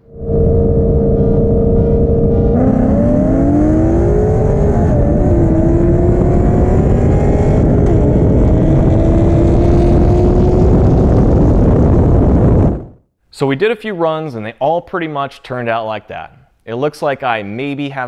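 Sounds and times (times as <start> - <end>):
heavy wind rush: 0.0 - 13.1
car engine at full throttle: 0.2 - 13.0.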